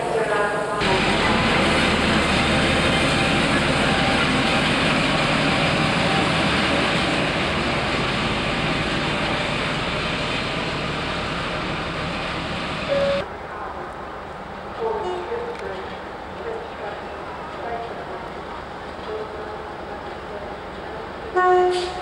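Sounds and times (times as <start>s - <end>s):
diesel engine rumbling: 0.8s - 13.2s.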